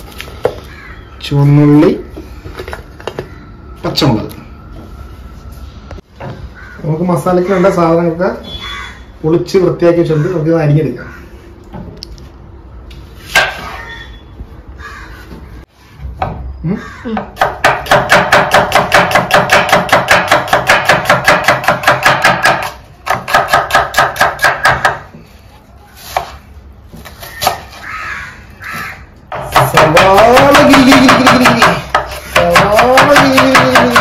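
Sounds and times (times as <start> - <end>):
knife chopping on wooden board: 17.2 - 25.1, 29.3 - 34.0.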